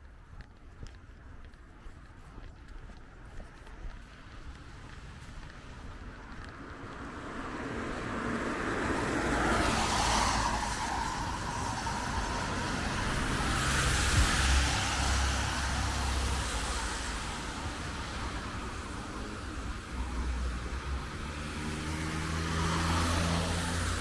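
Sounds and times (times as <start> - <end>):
tyres hissing on wet road: 6.6 - 24.0.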